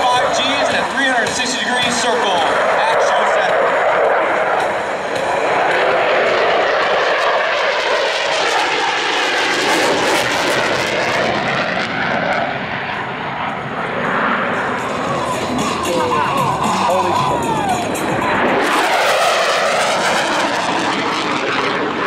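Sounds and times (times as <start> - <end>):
jet engine roar: 0.0 - 22.0.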